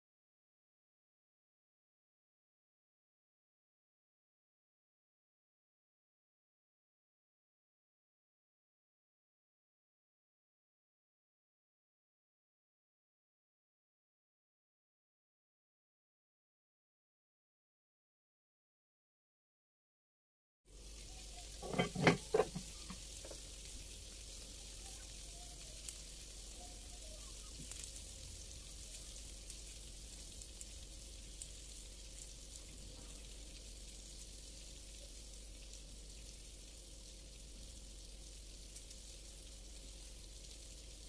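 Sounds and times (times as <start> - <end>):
food sizzling in oil: 20.7 - 41.0
clattering knocks: 21.6 - 22.7.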